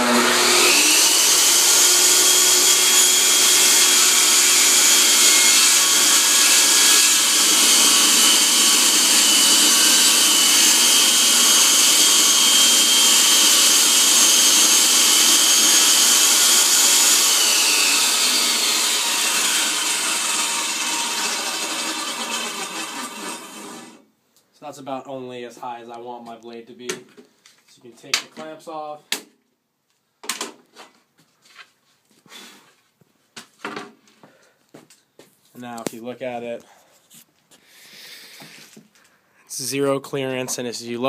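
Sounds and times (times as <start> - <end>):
saw blade spinning down: 0.0 - 24.0
table saw whine: 0.0 - 24.0.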